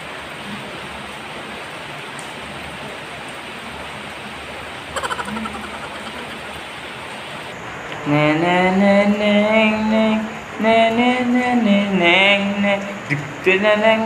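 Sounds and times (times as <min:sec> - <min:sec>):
steady rain: 0:00.0 - 0:08.1.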